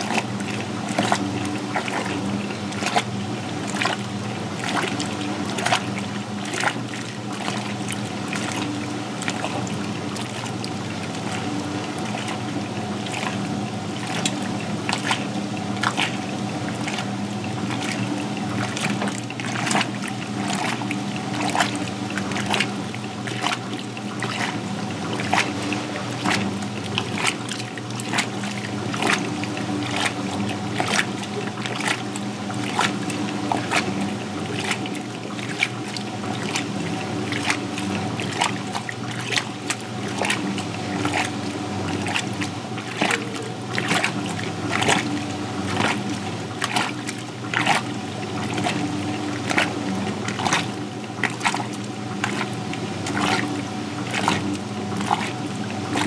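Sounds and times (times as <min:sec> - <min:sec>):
washing machine motor hum: 0:00.0 - 0:56.0
water splashing and sloshing: 0:00.0 - 0:56.0.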